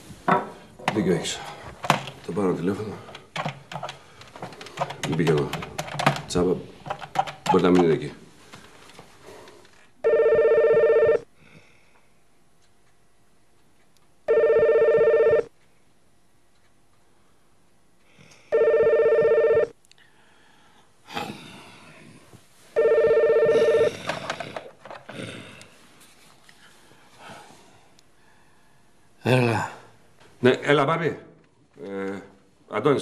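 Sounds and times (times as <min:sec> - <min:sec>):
telephone ringing: 0:10.0 - 0:11.2, 0:14.3 - 0:15.5, 0:18.5 - 0:19.7, 0:22.8 - 0:24.2.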